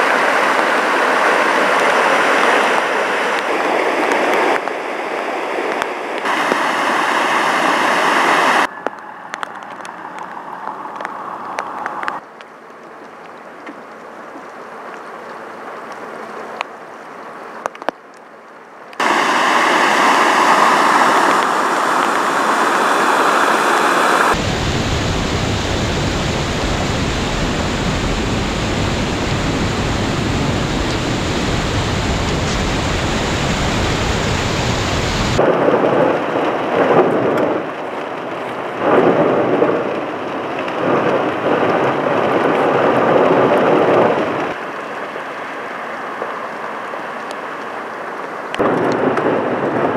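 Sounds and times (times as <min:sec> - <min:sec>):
vehicles splashing through flood water: 0:00.0 - 0:04.6, 0:06.2 - 0:12.2, 0:19.0 - 0:35.5
floodwater rushing over road edge: 0:00.0 - 0:49.9
rain and tyre spray inside car: 0:19.0 - 0:45.2.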